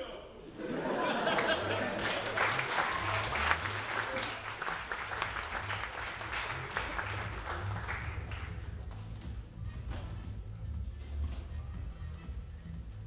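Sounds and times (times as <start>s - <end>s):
audience applauding: 1.0s - 8.8s.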